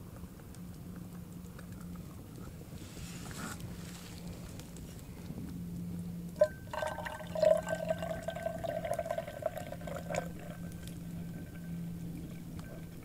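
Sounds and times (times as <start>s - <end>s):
drink pouring into cup: 6.4s - 13.0s.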